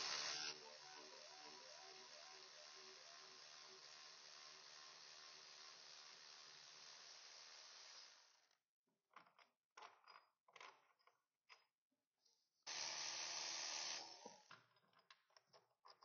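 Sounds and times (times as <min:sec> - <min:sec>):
cordless ratchet running: 0:00.0 - 0:08.3.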